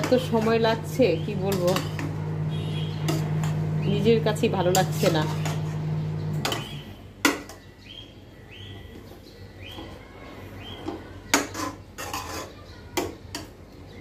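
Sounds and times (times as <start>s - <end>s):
metal spatula scraping a pan: 0.0s - 3.7s, 4.5s - 7.4s, 10.8s - 13.5s.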